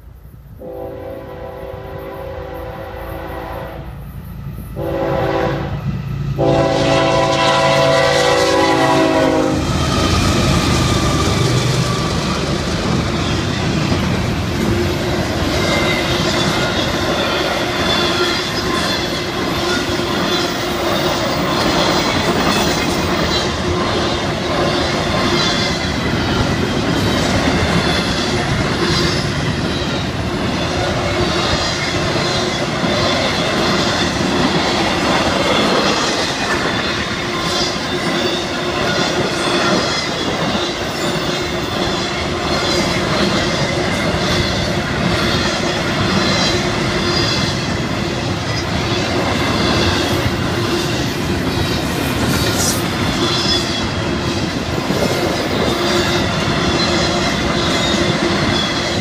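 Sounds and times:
train horn blasts: 0.6s - 4.0s, 4.8s - 9.8s
train wheels clattering over rails: 7.3s - 59.0s.

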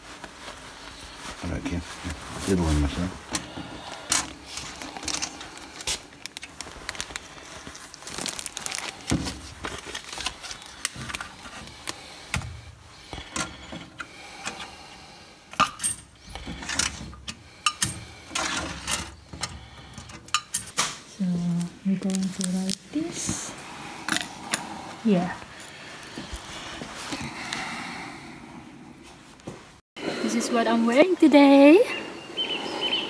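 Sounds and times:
coins clinking into a box: 15.7s - 16.1s, 20.3s - 20.9s.

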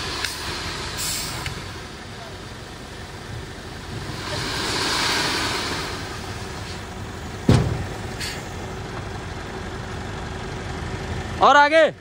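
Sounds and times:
truck engine running: 0.0s - 12.0s
air hiss: 0.2s - 1.6s, 4.0s - 6.9s, 8.1s - 8.5s.

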